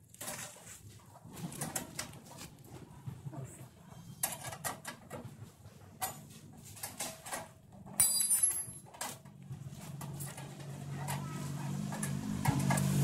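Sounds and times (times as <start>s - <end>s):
clicks and knocks of metal parts: 0.1s - 0.7s, 4.2s - 13.0s.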